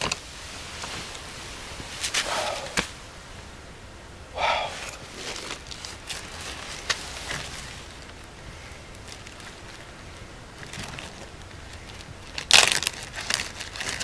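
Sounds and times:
camp chair rustling: 0:00.0 - 0:03.5, 0:04.4 - 0:14.0
breathy puffs: 0:02.1 - 0:03.0, 0:04.3 - 0:05.6.

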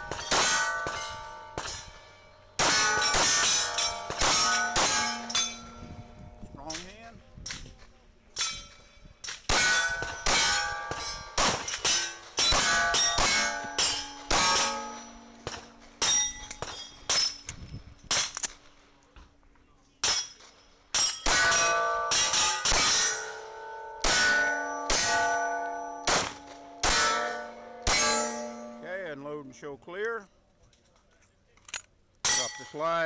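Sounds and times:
steel targets ringing: 0:00.0 - 0:06.2, 0:08.4 - 0:17.5, 0:20.0 - 0:29.3, 0:32.2 - 0:33.0
pistol shots: 0:02.6 - 0:05.5, 0:09.5 - 0:17.4, 0:26.0 - 0:28.4.

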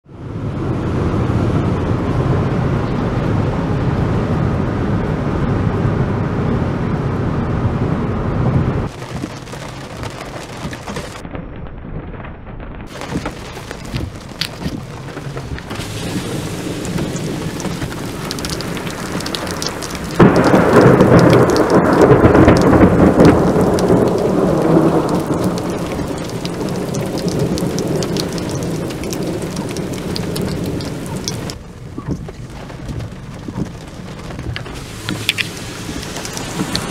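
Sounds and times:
heavy rain: 0:00.2 - 0:36.9
thunder crack and roll: 0:00.5 - 0:36.9
raindrops ticking on glass: 0:08.9 - 0:11.2, 0:12.9 - 0:36.9
low rumble: 0:11.2 - 0:36.9.

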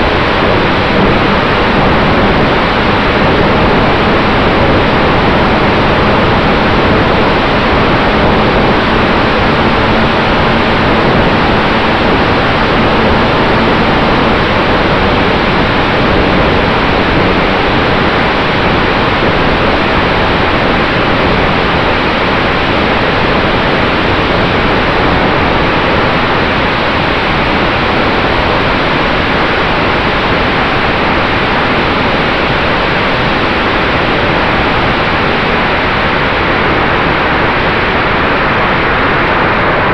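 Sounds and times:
faint steady hum: 0:00.0 - 0:39.9
rush of wind over camera: 0:00.0 - 0:39.9.

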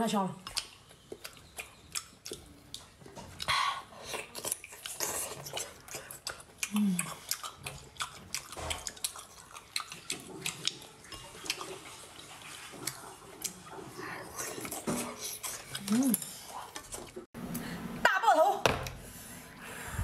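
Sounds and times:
wet chewing and slurping: 0:00.4 - 0:17.3
person humming: 0:06.7 - 0:07.1, 0:15.8 - 0:16.2.

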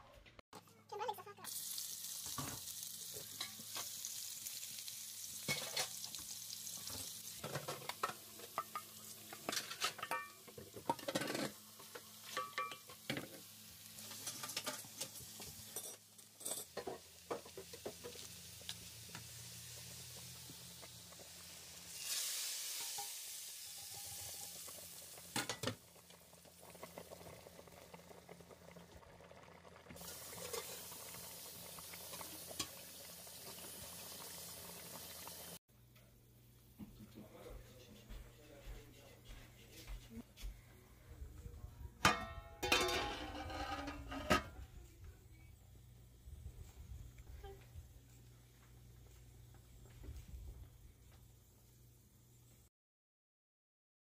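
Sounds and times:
onions sizzling in hot oil: 0:01.4 - 0:35.6
spatula scraping a pan: 0:09.4 - 0:13.3, 0:30.0 - 0:30.9, 0:42.2 - 0:44.6.

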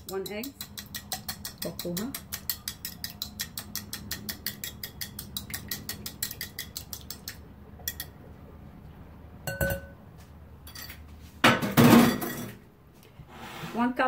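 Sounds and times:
fork beating egg in glass bowl: 0:00.0 - 0:08.2
ringing glass clink: 0:09.5 - 0:10.0.

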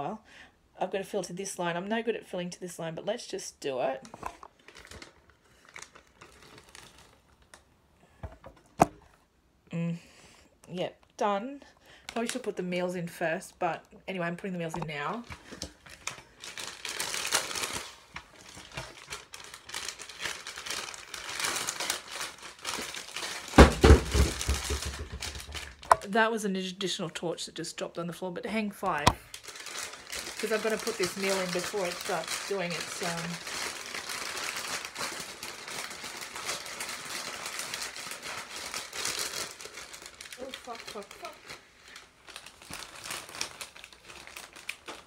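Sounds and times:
plastic packaging crinkling: 0:04.0 - 0:07.7, 0:14.8 - 0:26.1, 0:28.9 - 0:45.0.

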